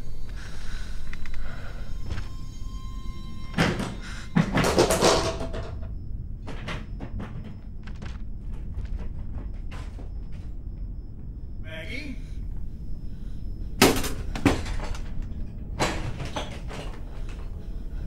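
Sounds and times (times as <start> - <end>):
brief steady tone: 0.0 - 5.0.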